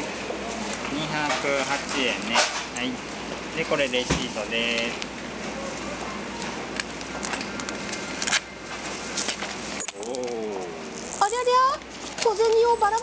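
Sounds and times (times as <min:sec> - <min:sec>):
coins clattering onto hard floor: 0:09.2 - 0:11.7
coins clinking: 0:09.2 - 0:11.8, 0:12.6 - 0:13.0
coins ringing: 0:09.2 - 0:11.8, 0:12.6 - 0:13.0.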